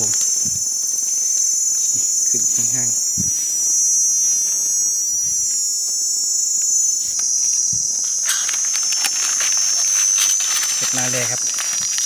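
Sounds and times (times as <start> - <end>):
insects droning: 0.0 - 12.0
rustling and clicking: 7.0 - 12.0.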